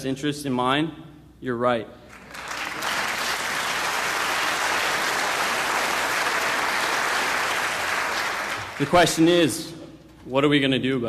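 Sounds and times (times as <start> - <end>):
audience applauding: 2.1 - 9.4.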